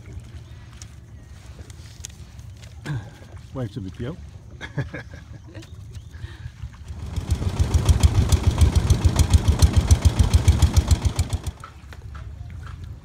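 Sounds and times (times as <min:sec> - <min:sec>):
boat engine chugging: 0:06.8 - 0:11.7.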